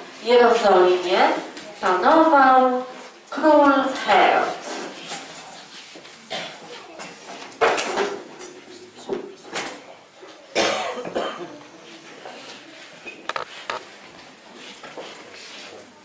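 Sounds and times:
person coughing: 10.5s - 11.6s.

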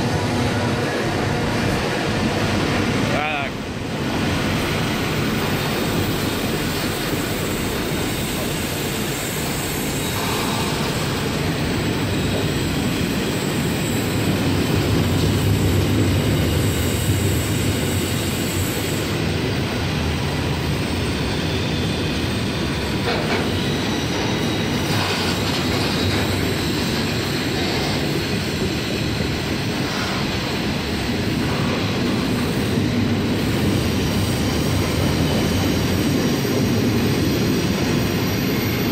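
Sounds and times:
train wheels rumbling on rail: 0.0s - 38.9s
train knocks: 21.7s - 37.6s.

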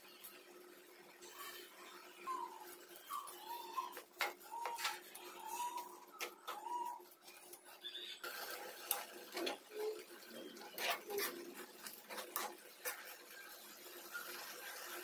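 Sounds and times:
metal spoon scraping a pan: 10.3s - 13.2s.

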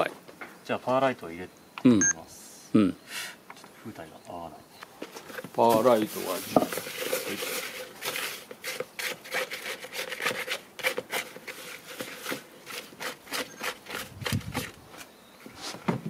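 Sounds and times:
spatula scraping plastic cup: 5.7s - 15.8s.

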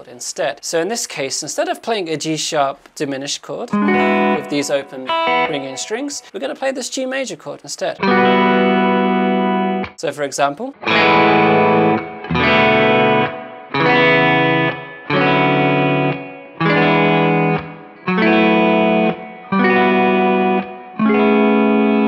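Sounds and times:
electric guitar strumming chords: 3.7s - 6.3s, 8.0s - 10.0s, 10.8s - 22.0s.

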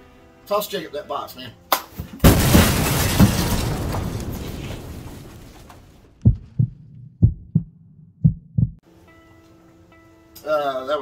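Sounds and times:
crash-like effect: 2.2s - 6.2s
heartbeat thumps: 6.2s - 8.8s.

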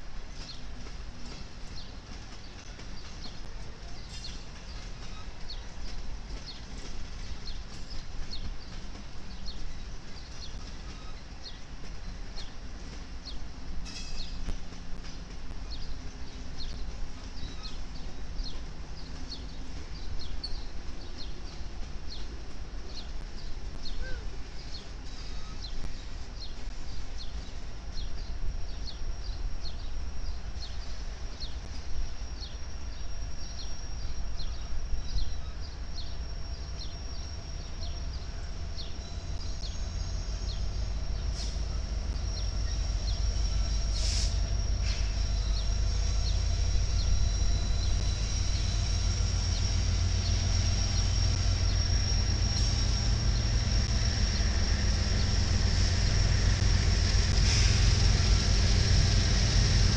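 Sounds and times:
locomotive rumble: 0.0s - 59.9s
thin high whine: 32.0s - 59.9s.

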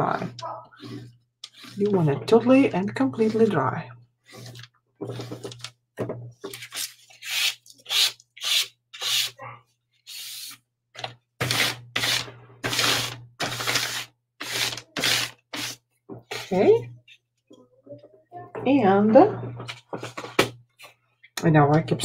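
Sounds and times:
eraser rubbing on paper: 0.8s - 1.9s, 7.2s - 9.4s.

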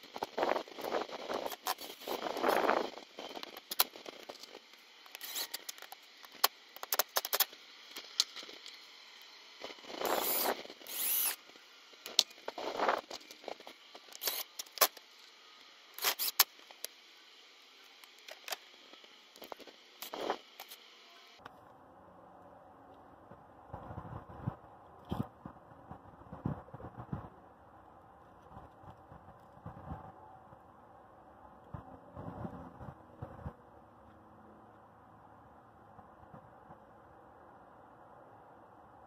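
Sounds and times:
impact driver driving screws: 10.0s - 11.4s, 14.1s - 15.0s, 16.0s - 16.6s.

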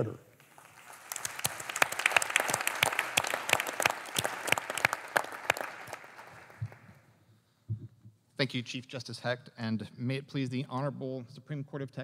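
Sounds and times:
audience applauding: 0.4s - 7.0s.

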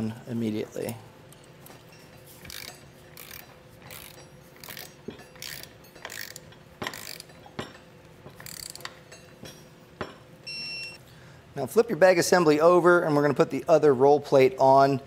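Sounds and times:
ratchet wrench clicking: 2.4s - 7.5s, 8.3s - 9.1s.

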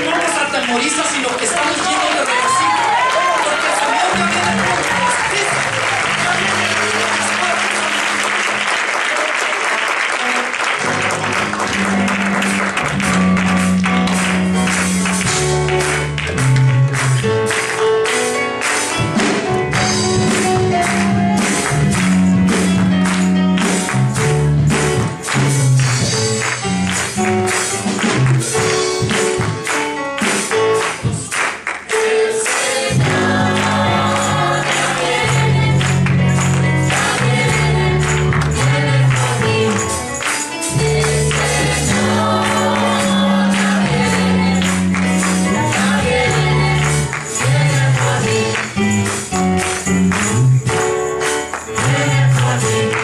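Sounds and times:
steady percussion beat: 11.8s - 53.0s
choir singing gospel song: 31.8s - 49.0s, 51.8s - 53.0s.

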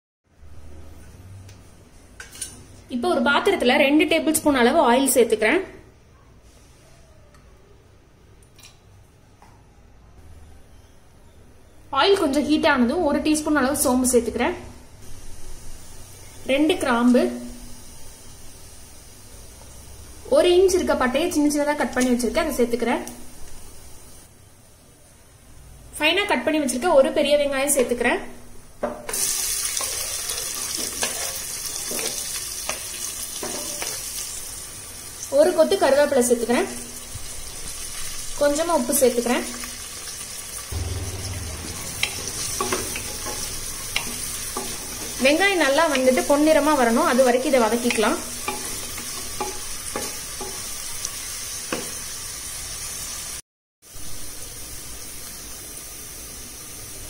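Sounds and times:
onions sizzling in hot oil: 15.0s - 24.4s, 28.8s - 57.0s.

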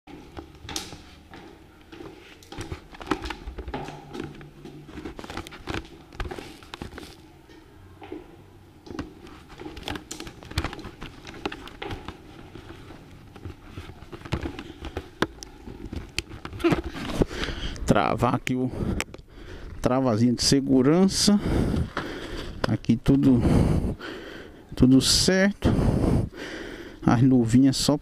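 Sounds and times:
footsteps on tiled stairs: 0.1s - 24.6s
camera handling knocks and rustling: 2.5s - 7.2s, 8.9s - 17.3s.

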